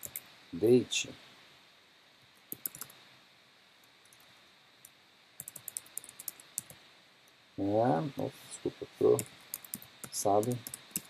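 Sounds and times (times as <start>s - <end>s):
computer keyboard typing: 0.0s - 0.2s, 2.5s - 2.9s, 5.4s - 6.8s, 9.1s - 11.0s.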